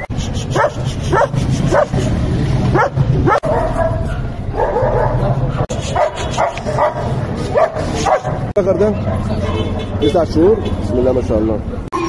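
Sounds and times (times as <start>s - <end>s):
dog barking: 0.6s - 2.1s, 2.7s - 9.7s.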